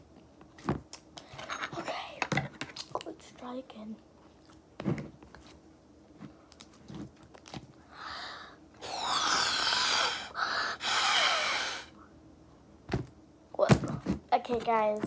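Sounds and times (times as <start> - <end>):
breath blowing through a straw: 8.8 - 11.9.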